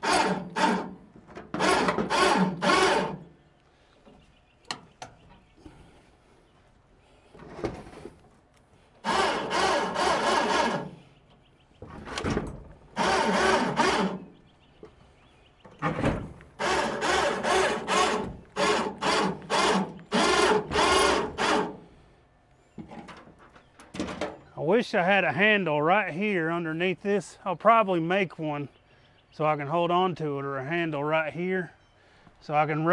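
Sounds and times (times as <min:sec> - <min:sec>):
electric winch running: 0:00.0 - 0:01.0, 0:01.6 - 0:03.2, 0:09.0 - 0:11.0, 0:13.0 - 0:14.3, 0:16.6 - 0:21.8.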